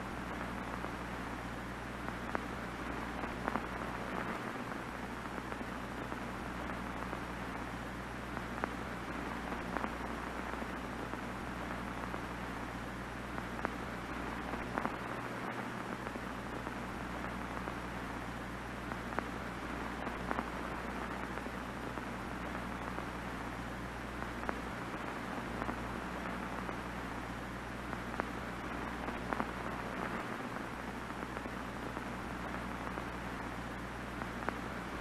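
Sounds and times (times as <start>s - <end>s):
television static hiss: 0.0s - 35.0s
faint clicks: 13.3s - 18.2s, 24.1s - 27.2s, 34.2s - 35.0s.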